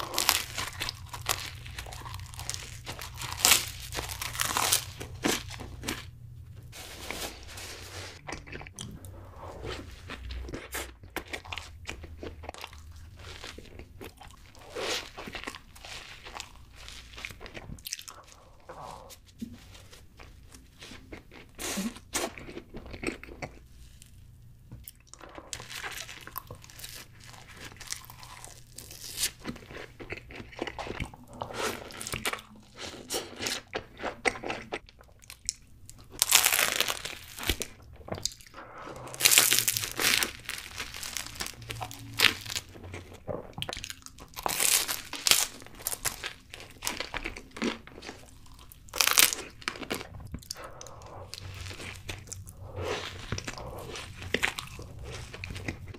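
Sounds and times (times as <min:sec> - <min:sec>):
crunchy pastry bites: 0:00.0 - 0:06.0, 0:34.5 - 0:38.4, 0:39.0 - 0:50.6
chewing: 0:08.2 - 0:24.1, 0:24.8 - 0:55.9.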